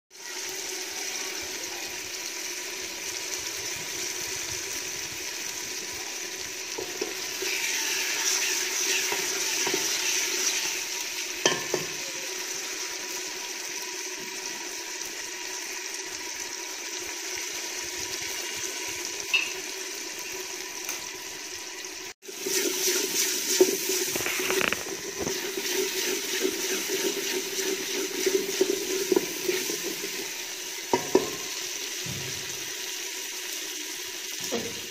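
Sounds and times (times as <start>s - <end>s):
vegetables sizzling in oil: 0.1s - 34.9s
spoon knocking against pot: 11.4s - 12.0s, 30.9s - 31.4s
wooden spoon scraping pot: 22.4s - 30.3s.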